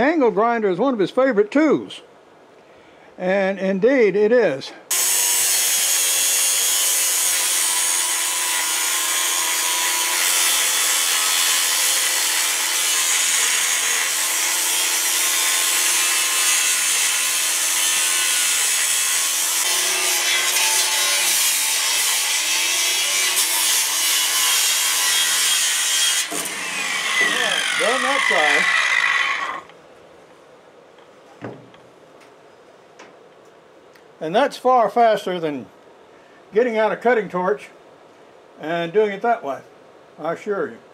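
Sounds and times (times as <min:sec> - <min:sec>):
angle grinder cutting steel: 0:04.9 - 0:29.7.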